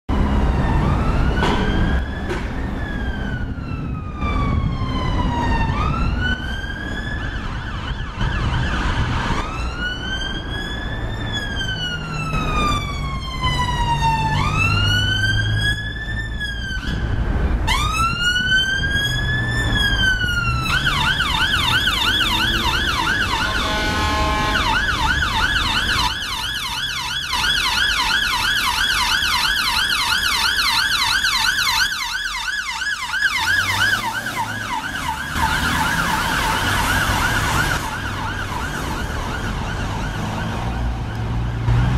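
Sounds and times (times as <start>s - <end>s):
ambulance siren wail and yelp: 0.1s - 41.7s
traffic rumbling: 0.1s - 41.9s
bullhorn blast: 22.4s - 25.0s.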